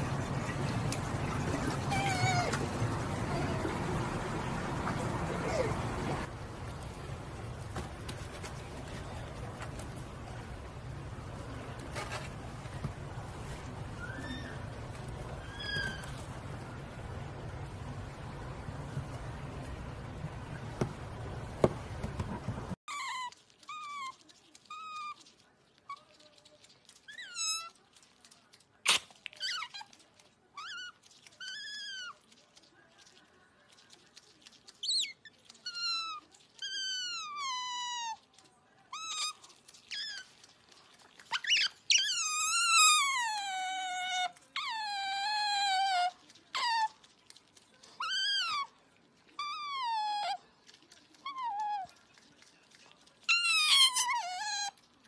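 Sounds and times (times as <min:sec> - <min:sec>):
otter pup squeaking chirps: 0:14.0 - 0:16.3, 0:34.7 - 0:38.2, 0:38.9 - 0:40.5, 0:41.2 - 0:47.1, 0:48.0 - 0:48.7, 0:53.2 - 0:54.9.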